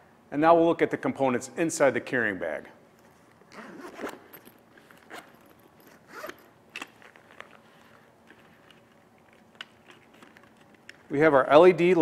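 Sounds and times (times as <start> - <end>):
zipper on fabric bag: 3.5 - 4.4, 5.0 - 6.5.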